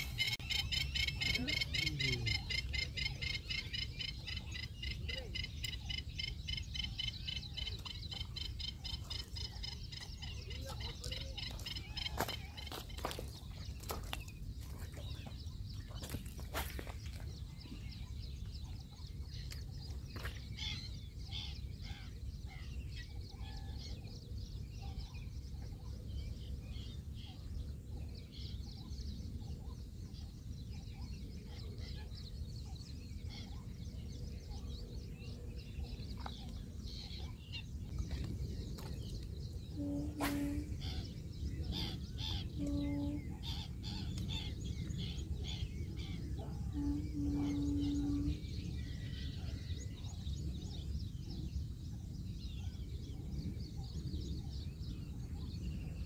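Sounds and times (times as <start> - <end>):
birds chirping: 0.0 - 56.0
low background rumble: 17.2 - 56.0
short low notes: 39.7 - 41.1.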